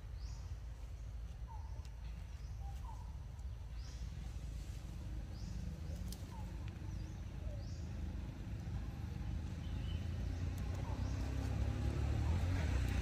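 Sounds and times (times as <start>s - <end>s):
faint bird chirps: 0.0s - 4.3s, 9.6s - 11.4s
motor vehicle engine rumble: 0.0s - 13.0s.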